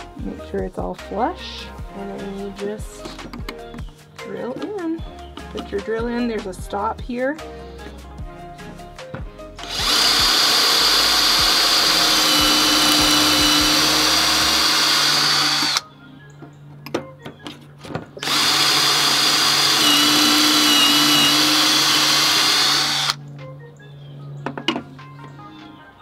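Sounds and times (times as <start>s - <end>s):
drill whining through plywood: 9.6s - 15.8s, 18.2s - 23.2s.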